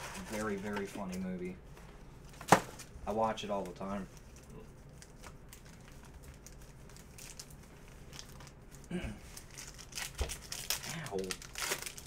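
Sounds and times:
foil wrappers crinkling: 2.8 - 12.0.

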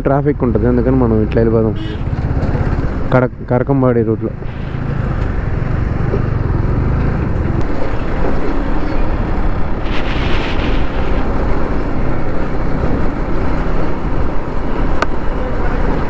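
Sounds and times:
motorcycle running: 0.4 - 3.4, 4.2 - 16.0
wind rushing on microphone: 4.4 - 16.0.

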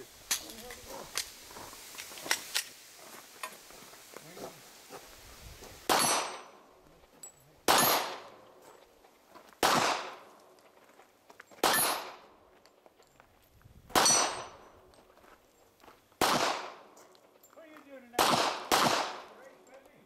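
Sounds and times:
handgun shots: 5.9 - 6.5, 7.7 - 8.3, 9.6 - 10.2, 11.6 - 12.2, 13.9 - 14.5, 16.2 - 16.8, 18.2 - 19.4.

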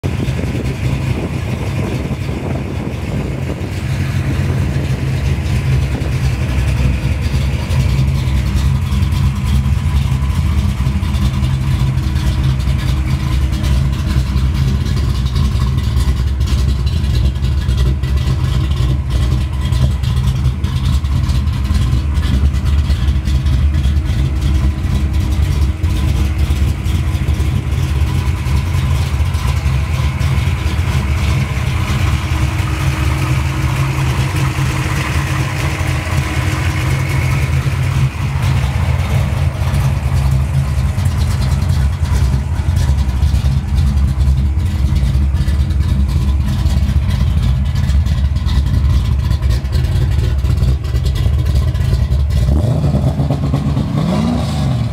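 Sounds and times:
car engine idling: 0.0 - 54.9.

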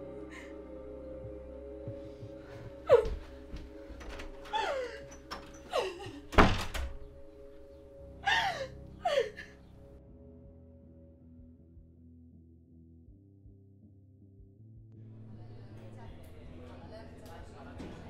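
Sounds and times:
soft sustained music: 0.0 - 13.2, 14.9 - 18.0
woman sobbing: 2.8 - 3.5, 4.4 - 6.4, 8.2 - 9.7
door slamming shut: 5.3 - 7.1.

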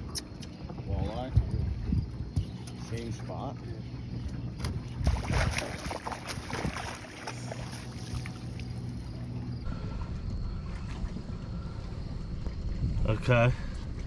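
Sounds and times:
steady low hum: 0.0 - 14.0
fish splashing at the surface: 4.6 - 9.2.

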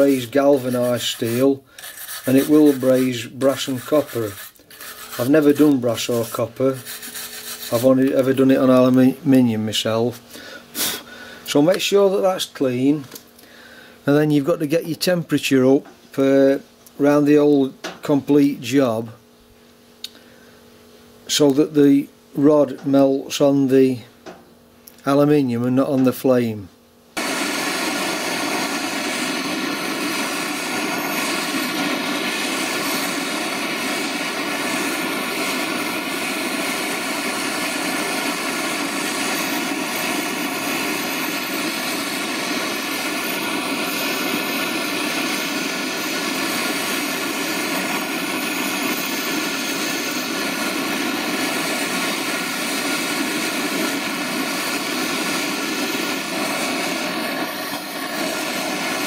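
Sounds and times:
blowtorch flame roaring: 0.0 - 1.6, 27.2 - 59.0.

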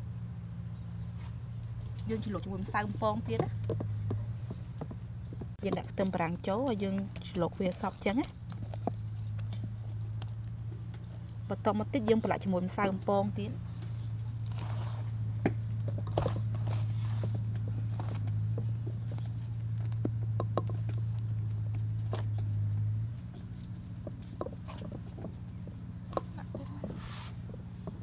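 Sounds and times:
steady low hum: 0.0 - 28.0
hands rustling in flour: 27.0 - 27.5.

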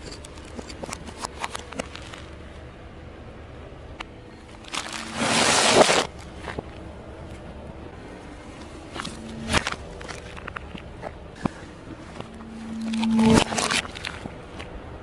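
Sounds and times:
crisp bag crunching reversed: 4.6 - 6.2.

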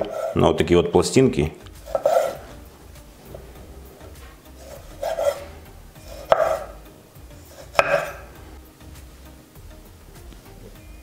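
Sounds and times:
knife slicing tomatoes: 0.0 - 0.4, 1.7 - 8.4
knife knocking on wooden board: 6.2 - 6.8, 7.7 - 8.3.

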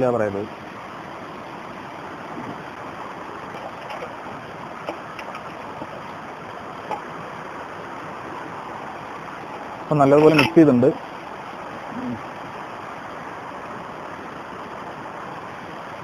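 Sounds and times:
stream flowing over rocks: 0.0 - 16.0.

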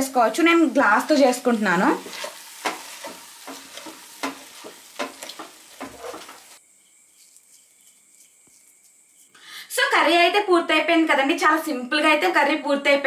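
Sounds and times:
pan sizzling: 0.0 - 8.9
squishing mashing strokes: 2.0 - 9.4.

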